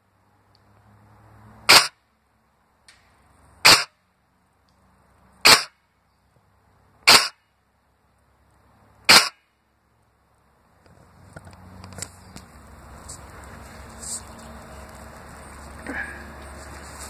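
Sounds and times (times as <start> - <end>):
airsoft rifle shots: 1.7 - 2.0, 3.6 - 3.9, 5.4 - 5.8, 7.1 - 7.4, 9.1 - 9.4.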